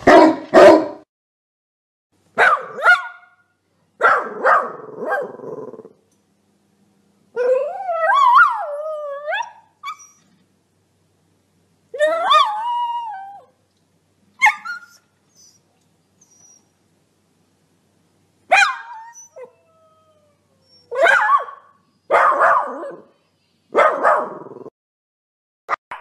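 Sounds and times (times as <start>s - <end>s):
dog barking: 0.0s - 1.0s, 2.4s - 3.4s, 4.0s - 5.4s, 18.5s - 19.1s, 20.9s - 23.1s, 23.7s - 24.6s
dog whining: 7.4s - 10.4s, 14.4s - 16.8s, 18.6s - 21.5s.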